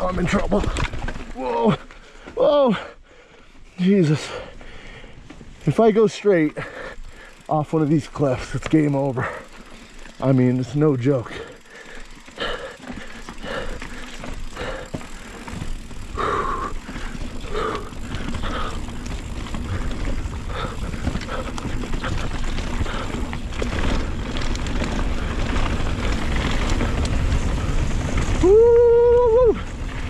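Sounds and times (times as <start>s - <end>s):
mountain bike rumbling on rocky trail: 0.0s - 2.9s, 3.8s - 30.0s
heavy breathing: 1.8s - 5.4s, 6.5s - 7.6s, 11.2s - 24.3s.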